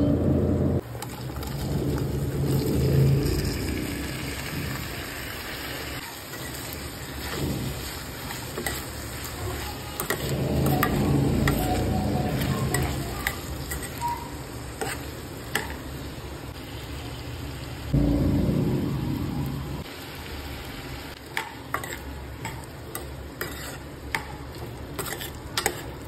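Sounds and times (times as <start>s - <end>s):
oil sizzling: 0.5s - 26.0s
spatula scraping a pan: 6.3s - 15.7s, 21.7s - 26.0s.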